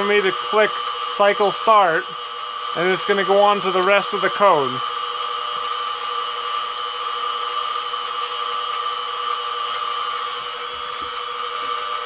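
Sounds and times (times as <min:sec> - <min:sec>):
mill spindle whine: 0:00.0 - 0:12.0.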